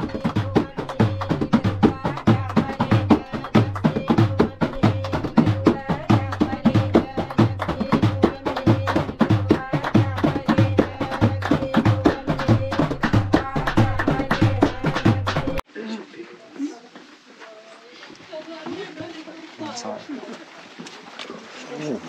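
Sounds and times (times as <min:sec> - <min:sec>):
frame drum beaten quickly: 0:00.0 - 0:15.6
many hands clapping: 0:00.0 - 0:15.6.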